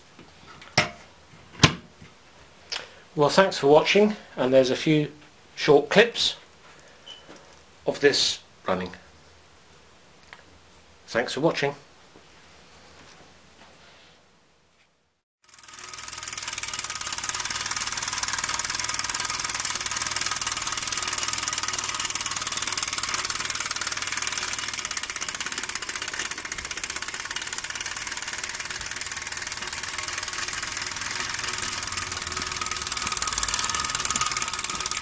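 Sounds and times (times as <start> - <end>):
toy steam engine chuffing: 15.4 - 35.0.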